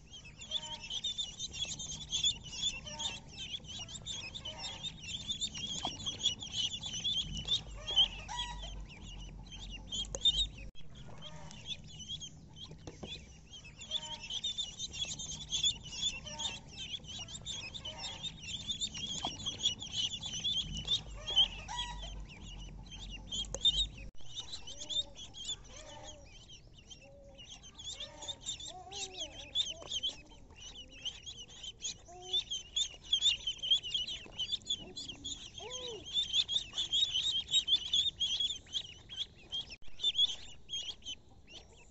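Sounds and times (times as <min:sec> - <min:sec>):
ducklings peeping: 0:00.0 - 0:41.9.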